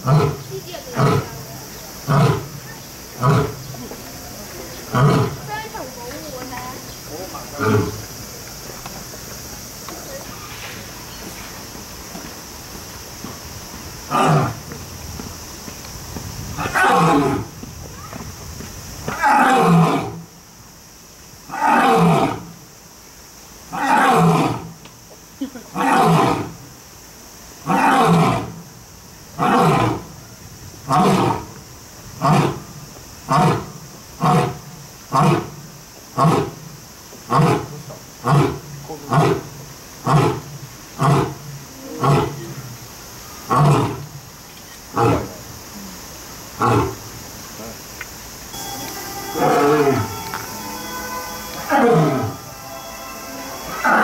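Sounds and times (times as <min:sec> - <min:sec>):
lion roaring: 0:00.0 - 0:01.4, 0:02.1 - 0:02.6, 0:03.2 - 0:03.6, 0:04.8 - 0:05.5, 0:07.6 - 0:08.1, 0:16.6 - 0:17.5, 0:19.1 - 0:20.2, 0:21.5 - 0:22.5, 0:27.7 - 0:28.6, 0:29.4 - 0:30.1, 0:30.9 - 0:31.6, 0:32.2 - 0:32.7, 0:37.3 - 0:42.6, 0:43.5 - 0:44.1, 0:44.9 - 0:45.4
lion grunting roars: 0:03.2 - 0:03.6, 0:04.8 - 0:05.5, 0:07.5 - 0:08.1, 0:37.3 - 0:42.7, 0:43.5 - 0:44.1.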